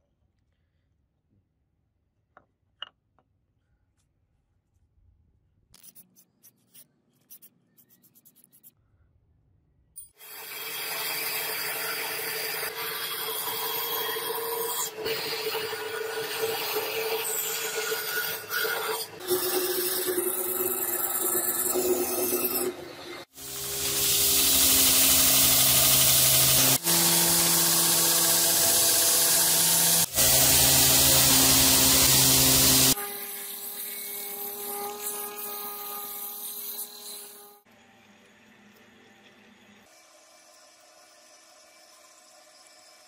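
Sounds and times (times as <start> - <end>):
band saw cutting steel: 10.2 - 37.6
belt grinder grinding: 18.0 - 33.0
belt sander on steel: 23.4 - 33.0.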